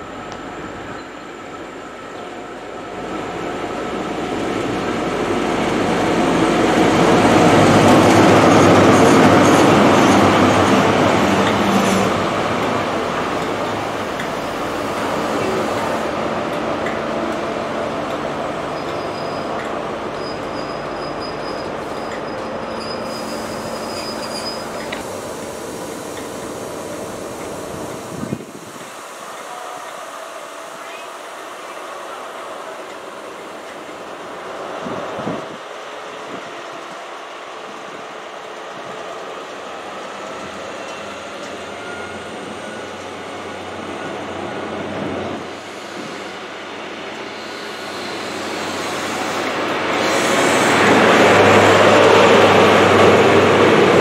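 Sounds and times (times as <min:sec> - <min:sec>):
train rolling under braking: 0:00.0 - 0:54.0
high brake squeal: 0:18.7 - 0:25.0, 0:40.7 - 0:43.6.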